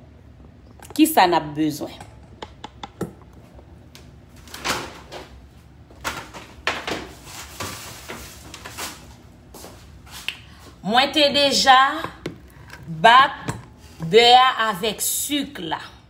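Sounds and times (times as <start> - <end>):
scraping and rustling: 6.1 - 10.2.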